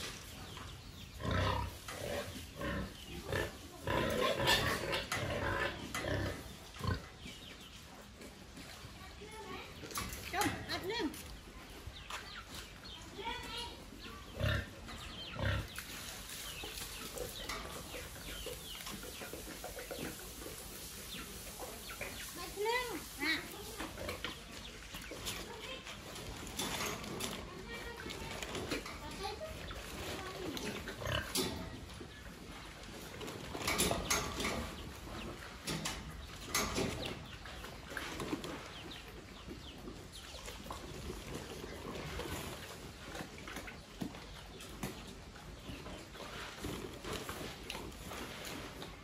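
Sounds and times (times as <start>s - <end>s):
chickens clucking: 0.0s - 49.0s
pig grunting: 1.2s - 7.0s, 14.3s - 15.8s, 30.7s - 31.4s.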